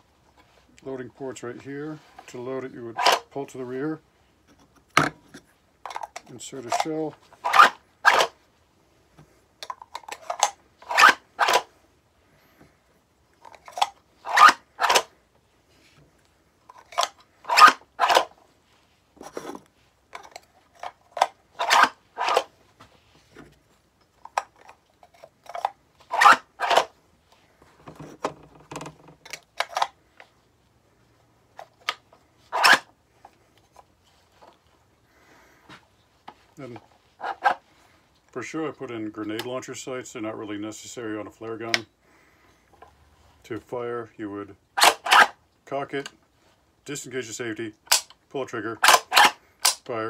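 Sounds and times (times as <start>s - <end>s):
plastic pump clacking: 5.8s - 8.3s, 27.7s - 29.9s.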